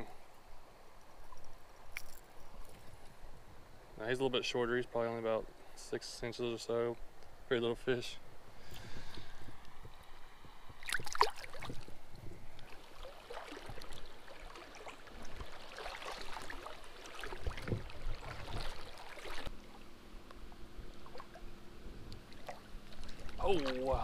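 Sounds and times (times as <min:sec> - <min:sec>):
wading through a stream: 0:10.8 - 0:19.9, 0:20.8 - 0:21.5, 0:22.1 - 0:24.0
fish splashing into water: 0:10.9 - 0:11.8, 0:12.6 - 0:19.5.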